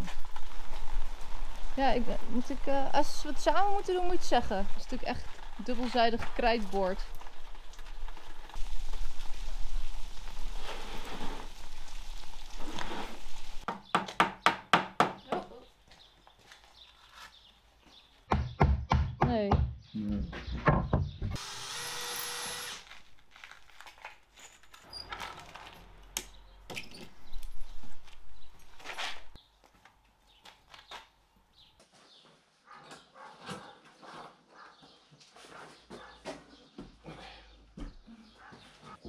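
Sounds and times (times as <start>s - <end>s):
steady rain: 0.0s - 5.5s, 6.9s - 13.7s.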